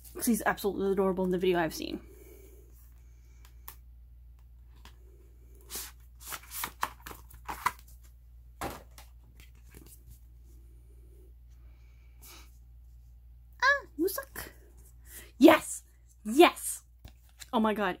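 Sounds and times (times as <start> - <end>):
cardboard and paper rustling: 5.6 - 10.3, 17.0 - 17.6.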